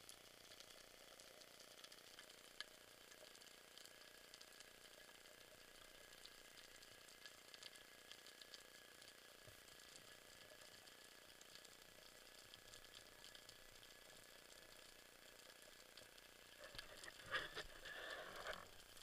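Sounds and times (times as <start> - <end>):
crackly underwater hiss: 0.0 - 19.0.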